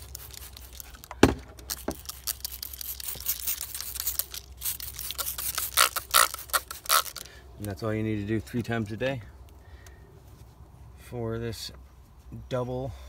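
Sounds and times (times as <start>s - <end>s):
spray bottle squirting: 0.0s - 7.3s.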